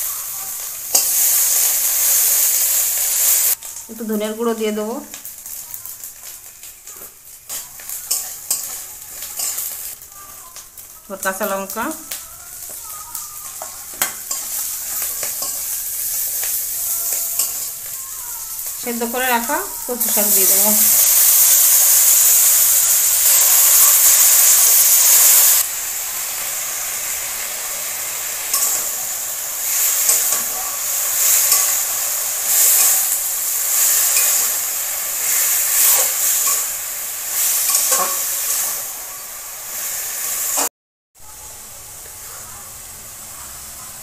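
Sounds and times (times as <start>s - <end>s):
greens sizzling in hot oil: 0.0s - 44.0s
spatula scraping a pan: 37.4s - 38.9s.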